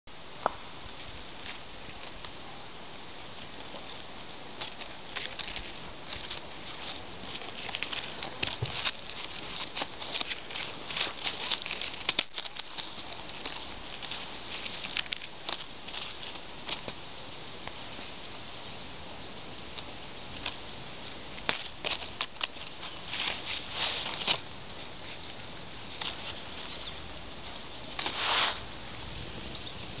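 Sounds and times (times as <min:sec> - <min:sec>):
dry leaves crackling and rustling: 0:03.1 - 0:17.8, 0:19.8 - 0:28.7.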